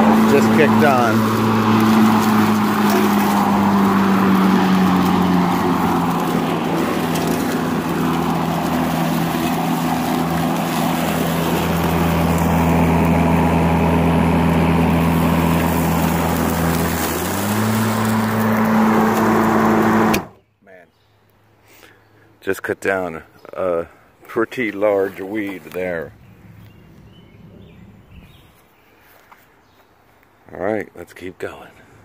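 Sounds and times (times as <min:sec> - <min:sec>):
electric lawn mower running: 0:00.0 - 0:20.4.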